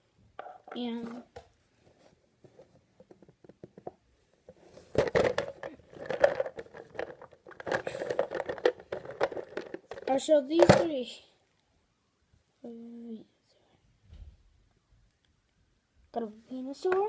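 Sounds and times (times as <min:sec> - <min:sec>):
plastic tub crinkling and clattering: 0:02.5 - 0:11.0.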